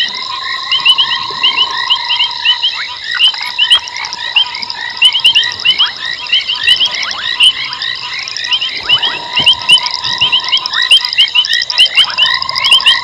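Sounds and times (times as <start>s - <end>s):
frogs chirping: 0.0s - 13.0s
steady high tones: 0.0s - 13.0s.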